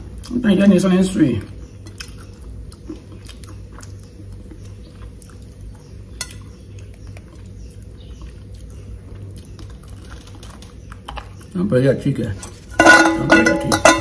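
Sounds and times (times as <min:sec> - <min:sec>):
low steady hum: 0:00.0 - 0:14.0
person chewing crunchy candy: 0:01.5 - 0:11.6.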